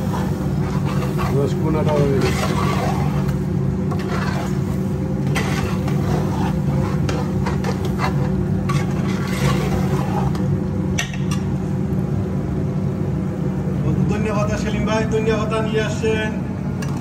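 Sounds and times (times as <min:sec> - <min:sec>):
metal spoon scraping a pot: 0:00.0 - 0:10.5
steady low hum: 0:00.0 - 0:17.0.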